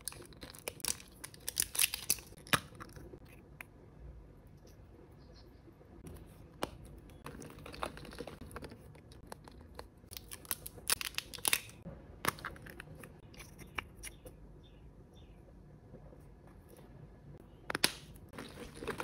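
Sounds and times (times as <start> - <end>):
plastic wrapper crinkling and tearing: 0.0 - 3.1, 7.3 - 11.8.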